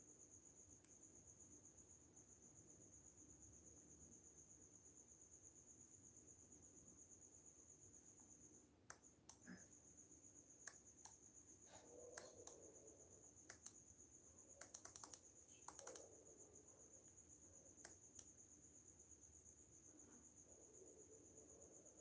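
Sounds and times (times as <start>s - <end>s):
crickets chirping: 0.0s - 22.0s
faint sharp clicks: 8.9s - 9.6s, 10.6s - 11.2s, 12.1s - 12.6s, 13.4s - 13.8s, 14.6s - 16.1s, 17.8s - 18.4s.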